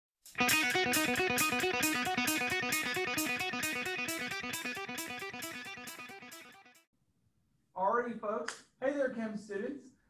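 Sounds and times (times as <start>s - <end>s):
guitar riff over a beat: 0.3s - 6.9s.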